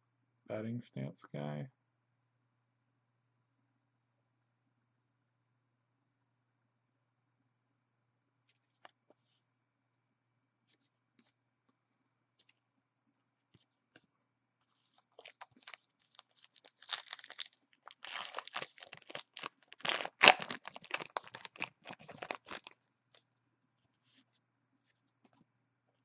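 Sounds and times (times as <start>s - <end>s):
wrapper tearing and crinkling: 15.1s - 22.8s.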